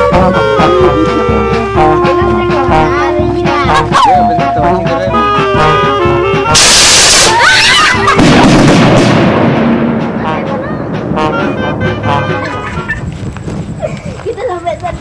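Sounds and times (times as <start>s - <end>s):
band music playing: 0.0s - 13.0s
firework bursting boom: 6.5s - 7.4s, 8.0s - 10.2s
skyrocket launching hiss: 6.5s - 7.7s.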